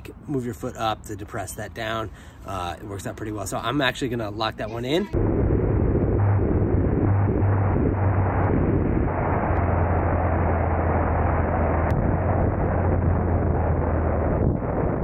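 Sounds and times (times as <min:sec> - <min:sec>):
wind rushing over microphone: 0:05.1 - 0:15.0.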